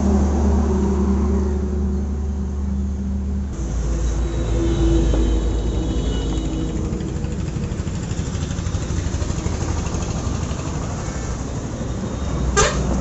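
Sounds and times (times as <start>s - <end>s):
motorcycle engine idling: 5.7s - 11.1s.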